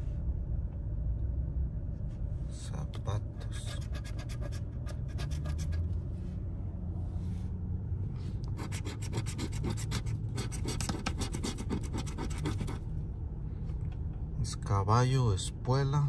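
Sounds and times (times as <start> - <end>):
low steady rumble: 0.0 - 16.0
coin scraping scratch card: 3.6 - 5.8, 8.6 - 12.8.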